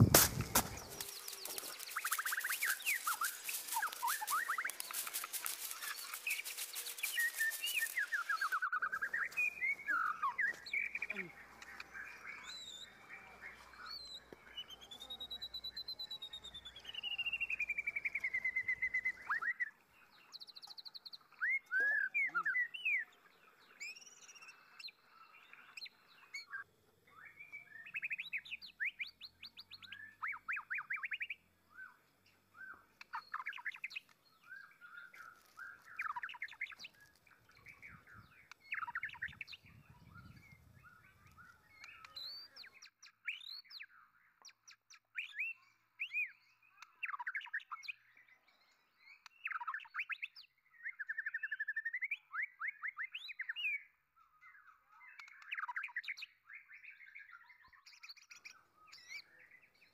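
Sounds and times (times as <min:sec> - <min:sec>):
birds chirping: 0:00.0 - 0:44.6.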